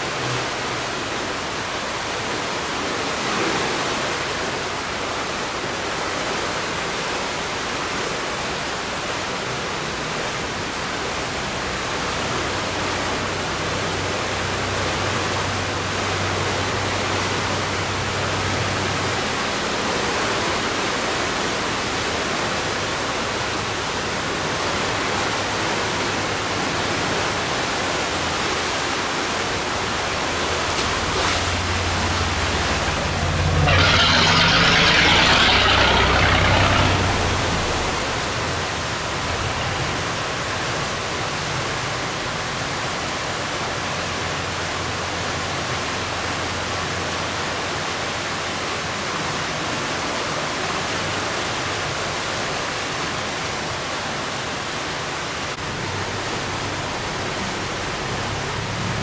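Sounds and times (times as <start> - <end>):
water rushing through sluice: 0.0 - 59.0
low engine hum: 21.2 - 47.8
water hissing: 29.7 - 39.2.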